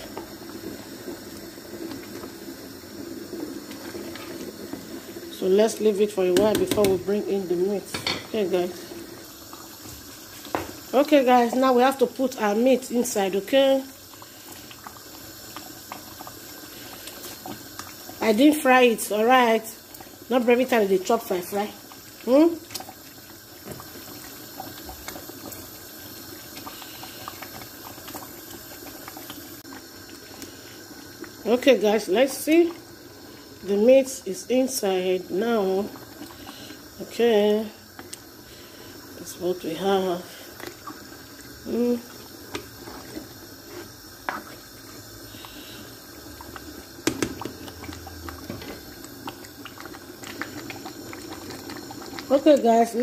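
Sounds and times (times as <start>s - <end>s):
stew simmering hiss: 0.0s - 53.0s
small bubbling pops: 21.7s - 31.4s, 37.8s - 38.4s, 40.5s - 52.7s.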